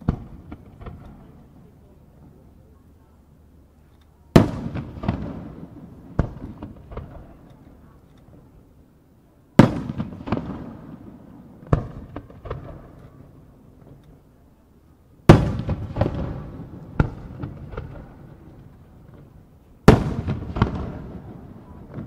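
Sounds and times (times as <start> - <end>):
firework shells booming: 0.0 - 1.4, 4.3 - 7.4, 9.6 - 14.0, 15.2 - 22.0
rolling echo: 4.3 - 8.5, 15.3 - 22.0.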